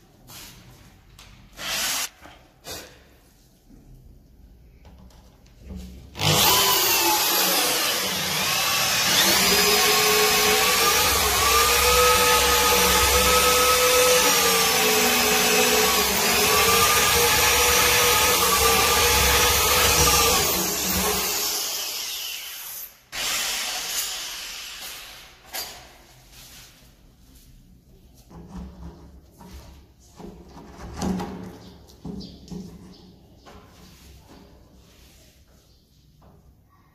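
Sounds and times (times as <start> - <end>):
power tool cutting wood: 1.6 - 2.1, 6.2 - 25.1.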